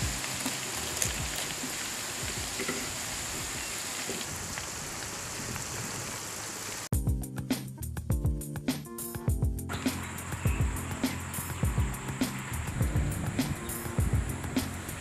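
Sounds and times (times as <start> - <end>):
onions sizzling in hot oil: 0.0 - 6.9
music with a beat: 6.9 - 15.0.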